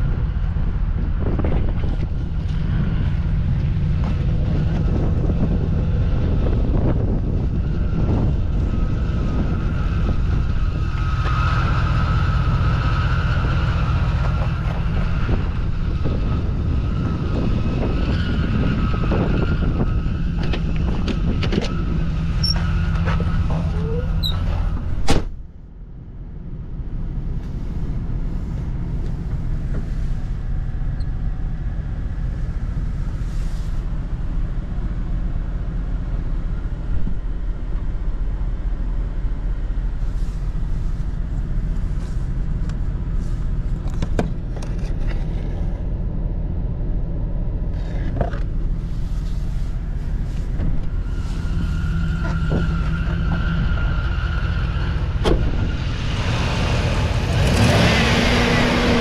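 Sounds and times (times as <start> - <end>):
car door shutting: 22.5 - 25.4, 55.2 - 55.7.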